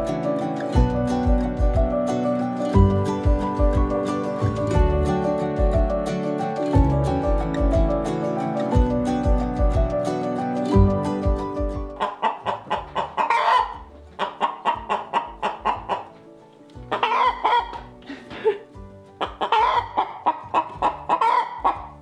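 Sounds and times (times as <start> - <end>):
soft background music: 0.0 - 22.0
chickens clucking: 11.9 - 18.5, 19.1 - 22.0.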